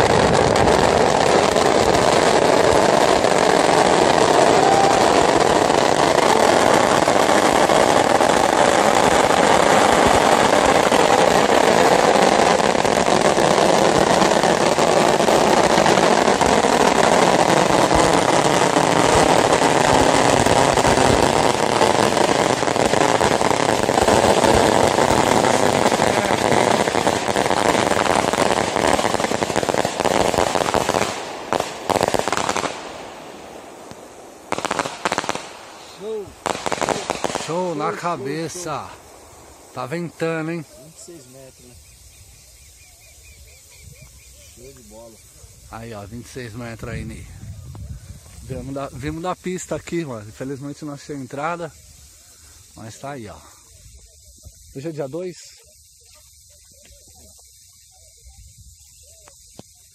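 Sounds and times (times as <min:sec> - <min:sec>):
firecracker bangs: 0:00.0 - 0:40.6
firecrackers crackling: 0:00.0 - 0:59.9.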